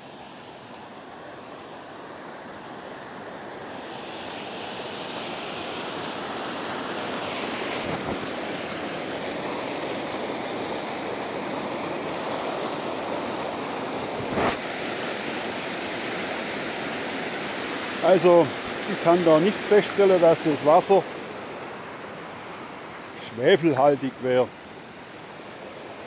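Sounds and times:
waterfall splashing over rock: 4.8 - 21.2.

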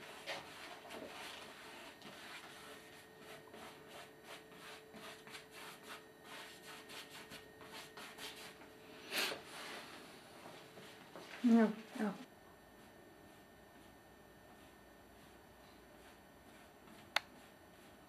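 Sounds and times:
paintbrush scrubbing on canvas: 0.0 - 8.6.

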